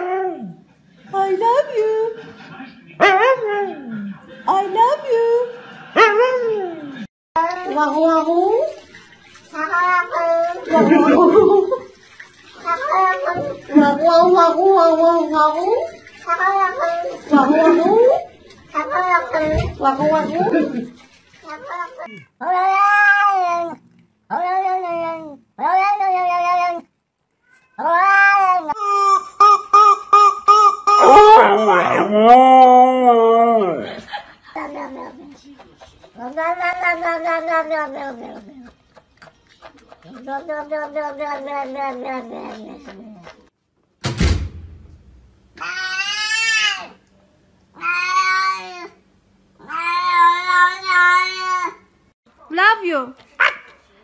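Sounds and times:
dog yowling: 0:21.5 - 0:26.9, 0:30.0 - 0:33.9
cat meowing yowls: 0:21.5 - 0:28.8, 0:45.6 - 0:47.0, 0:47.8 - 0:49.0, 0:49.6 - 0:51.8
dog howling: 0:31.0 - 0:33.9
thump: 0:44.0 - 0:45.3.

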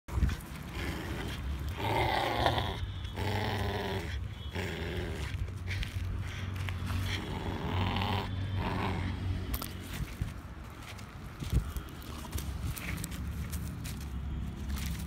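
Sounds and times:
puppy growling: 0:00.2 - 0:05.5, 0:06.9 - 0:09.2.

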